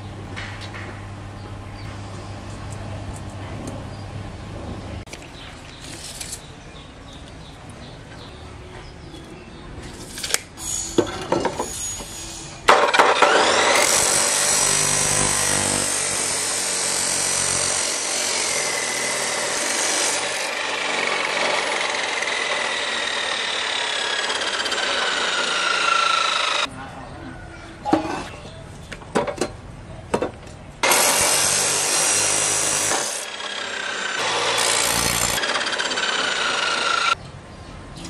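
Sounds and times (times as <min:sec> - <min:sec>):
chop saw cutting steel: 0:10.1 - 0:26.7, 0:30.8 - 0:37.2.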